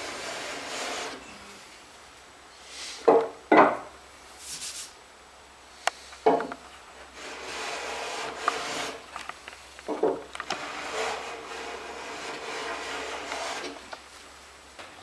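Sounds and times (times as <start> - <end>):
hand plane cutting wood: 0.0 - 1.2, 7.1 - 9.1, 10.5 - 13.9.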